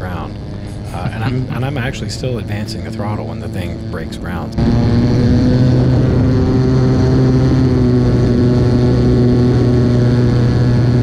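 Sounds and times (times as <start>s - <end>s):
model airplane engine drone: 0.0s - 11.0s.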